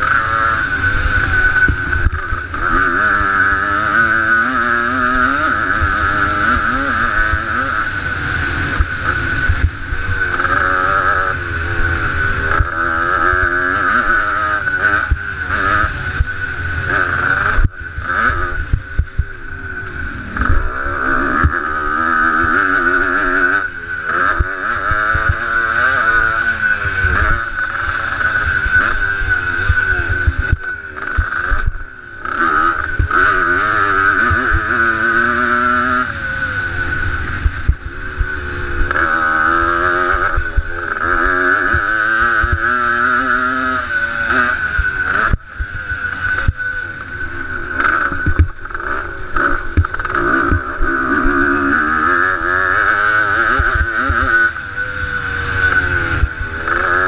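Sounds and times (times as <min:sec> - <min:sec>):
dirt bike engine revving: 0:00.0 - 0:57.0
wind rumble on microphone: 0:26.1 - 0:57.0.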